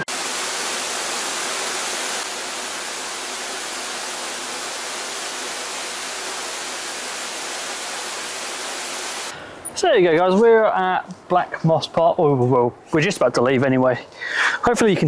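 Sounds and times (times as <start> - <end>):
rushing water: 0.0 - 9.3.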